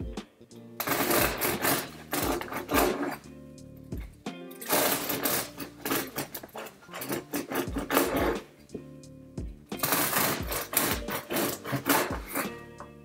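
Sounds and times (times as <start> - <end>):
background music with steady beat: 0.0 - 13.0
bread knife sawing crust: 0.8 - 3.2, 4.6 - 8.5, 9.8 - 12.7.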